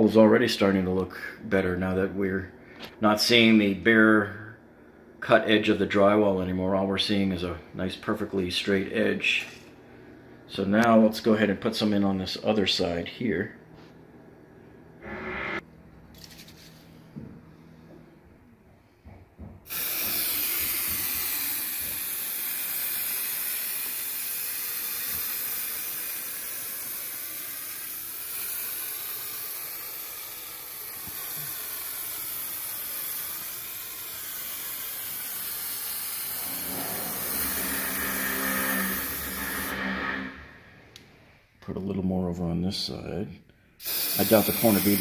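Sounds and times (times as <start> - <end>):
aerosol spray hissing: 19.7 - 39.7, 43.8 - 45.0.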